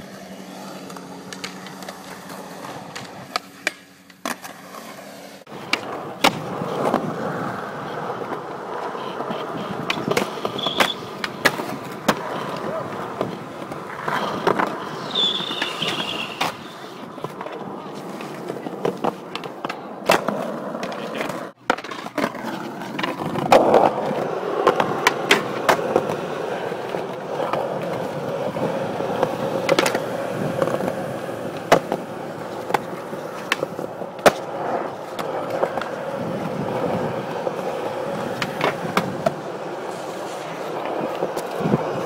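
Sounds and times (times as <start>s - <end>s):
skateboard clacking on ground: 0.0s - 42.0s
skateboard wheels rolling on concrete: 0.0s - 42.0s.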